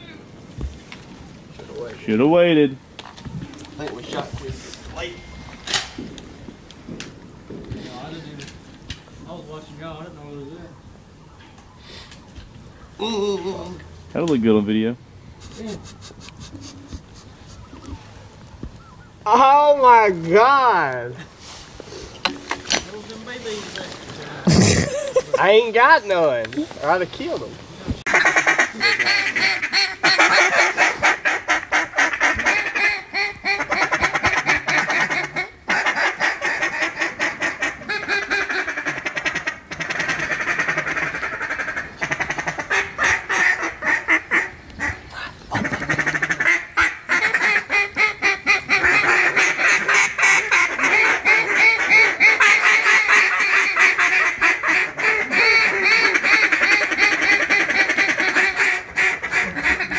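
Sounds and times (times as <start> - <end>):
ducks quacking: 15.3 - 18.2, 28.1 - 59.9.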